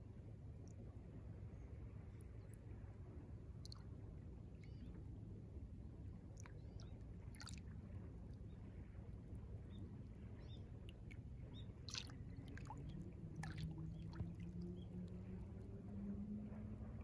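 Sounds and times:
faint low hum: 0.0s - 17.0s
little splashes and plops: 6.3s - 7.8s, 11.8s - 15.7s
small waves lapping at shore: 11.8s - 16.3s.

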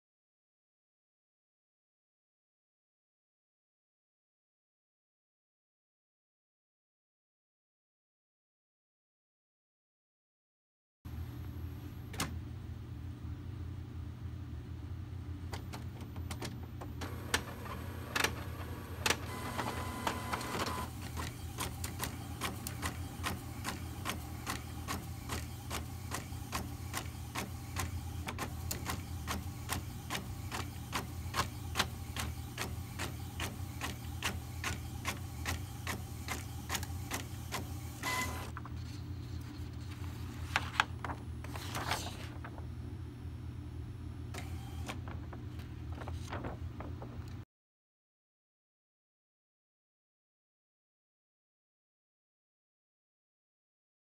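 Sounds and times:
printer low hum: 15.3s - 47.2s
printer paper feed clacks: 15.6s - 38.5s.

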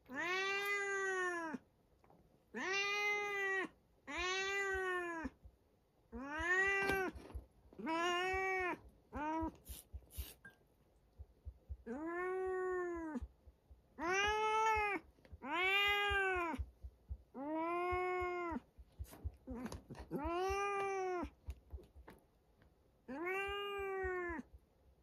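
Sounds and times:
cat meowing: 0.0s - 1.6s, 2.5s - 5.4s, 6.1s - 9.7s, 11.7s - 13.3s, 14.0s - 16.7s, 17.3s - 18.6s, 19.4s - 21.4s, 23.1s - 24.5s.

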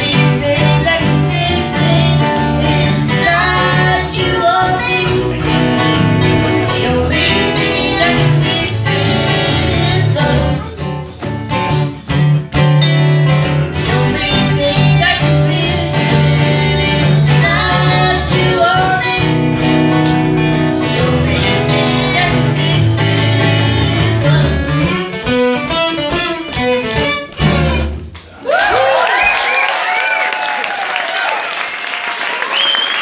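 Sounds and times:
people singing: 0.0s - 10.8s, 13.8s - 20.2s, 20.8s - 24.9s
acoustic string band playing: 0.0s - 28.3s
audience cheering and whooping: 28.3s - 33.0s.

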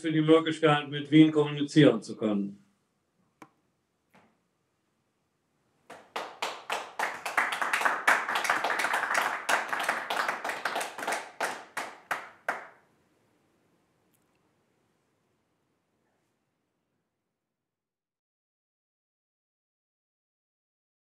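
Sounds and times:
group clapping: 5.9s - 12.8s.

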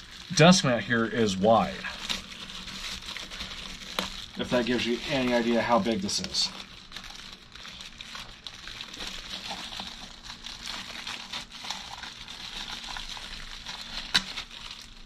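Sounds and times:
packaging rustling: 0.0s - 15.0s.

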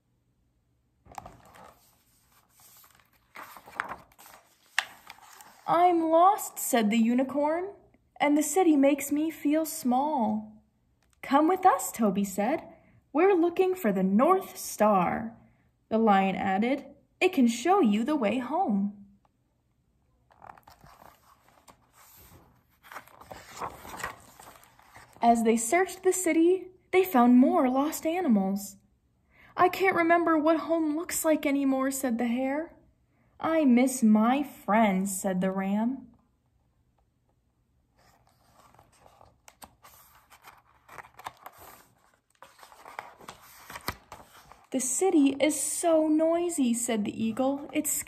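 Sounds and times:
book page being turned: 1.0s - 5.7s, 20.3s - 25.2s, 38.0s - 44.7s
paper clicks and flaps: 1.1s - 5.7s, 20.3s - 25.2s, 38.0s - 44.7s.

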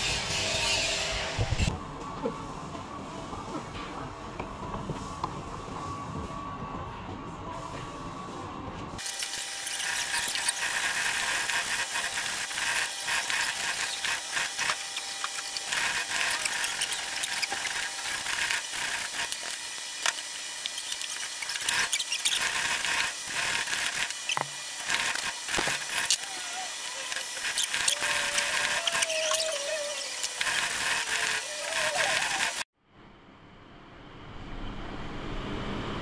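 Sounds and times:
hacksaw rasping on metal: 9.0s - 32.6s.

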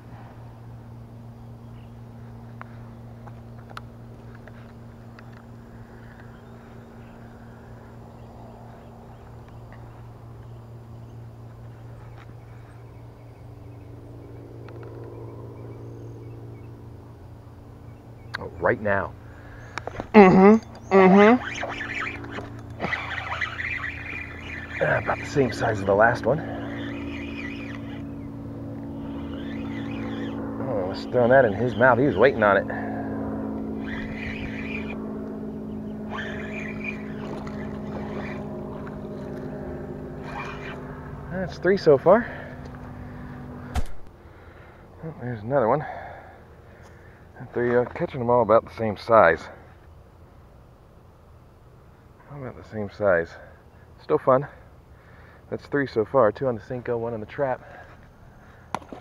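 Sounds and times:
motor humming: 0.0s - 44.9s.

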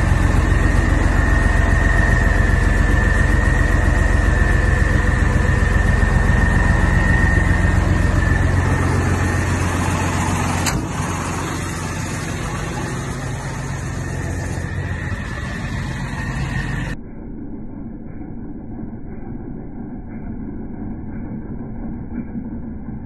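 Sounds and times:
truck engine idling: 0.0s - 17.0s
thin high whine: 0.0s - 23.0s.

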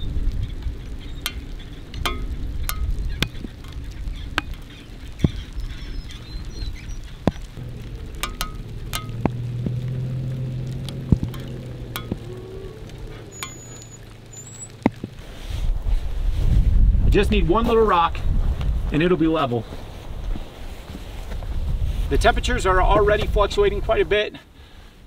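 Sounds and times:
sharp clicks and crackles: 0.0s - 15.2s
engine humming: 0.0s - 15.3s.

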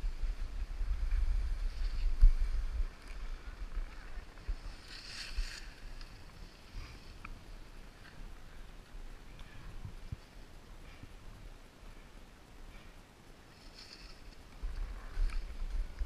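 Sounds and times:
wind buffeting microphone: 0.0s - 11.6s, 14.4s - 16.0s
skis scraping across snow: 0.2s - 7.2s.

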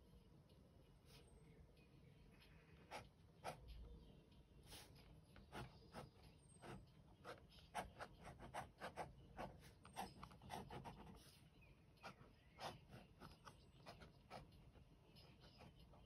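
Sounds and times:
pen scratching on paper: 4.7s - 16.0s.

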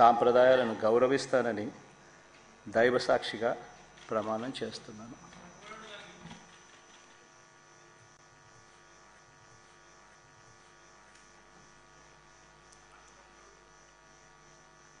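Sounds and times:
faint electrical hum: 0.0s - 15.0s.

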